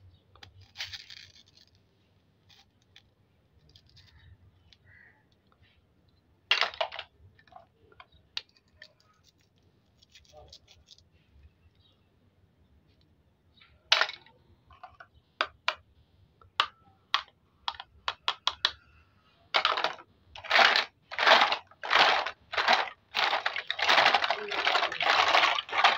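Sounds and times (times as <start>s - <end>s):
plastic toys clicking together: 6.5s - 11.0s, 13.9s - 15.8s, 16.4s - 18.9s, 19.5s - 25.9s.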